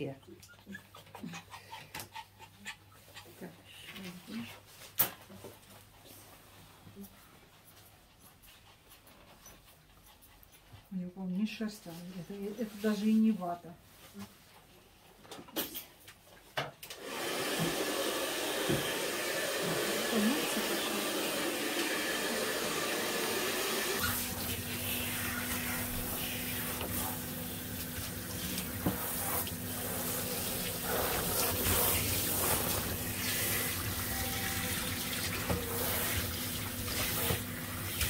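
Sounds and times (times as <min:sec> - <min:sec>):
water running from hose: 0:17.0 - 0:38.0.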